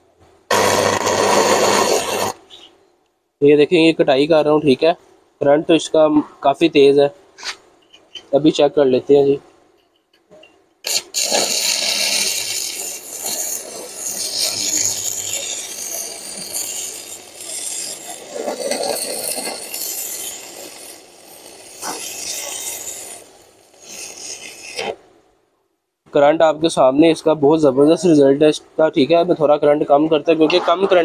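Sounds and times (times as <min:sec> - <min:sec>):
welding arc crackling and hissing: 0:00.5 - 0:02.7, 0:10.8 - 0:25.0.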